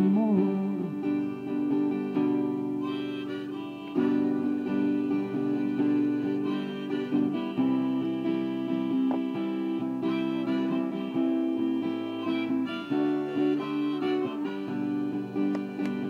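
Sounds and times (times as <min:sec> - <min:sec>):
harmonica holding notes: 0:00.0 - 0:16.0
strummed acoustic guitar: 0:00.0 - 0:16.0.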